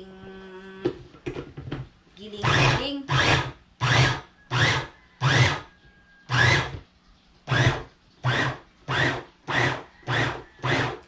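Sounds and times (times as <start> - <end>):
food processor motor whirring: 2.4 - 5.7, 6.3 - 6.8, 7.4 - 11.0.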